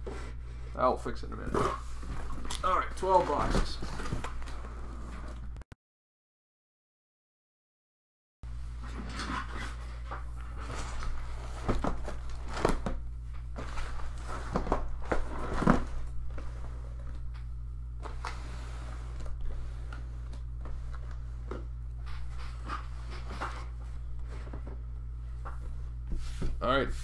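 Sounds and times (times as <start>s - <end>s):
steady low hum: 8.5s - 27.0s.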